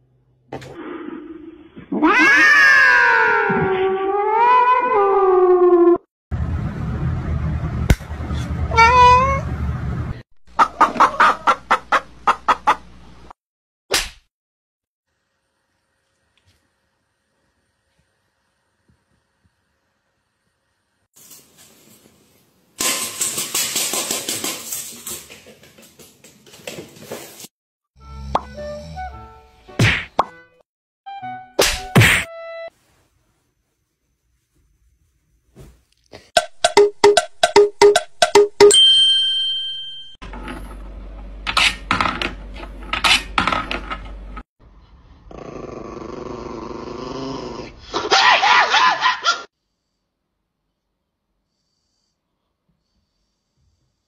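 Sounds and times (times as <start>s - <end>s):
dog growling: 45.2s - 47.9s.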